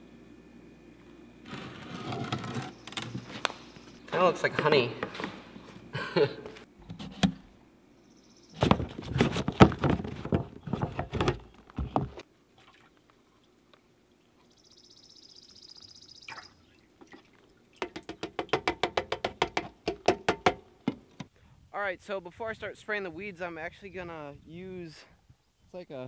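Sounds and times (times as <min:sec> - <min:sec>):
liquid trickling into tank: 0:16.3 - 0:18.5.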